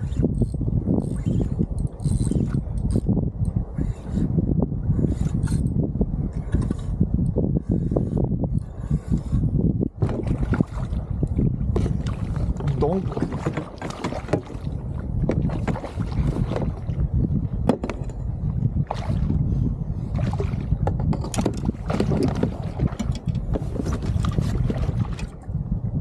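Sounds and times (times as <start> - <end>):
wind buffeting microphone: 0.0 - 26.0
water slapping at kayak: 10.0 - 18.0, 18.8 - 19.4, 20.1 - 25.4.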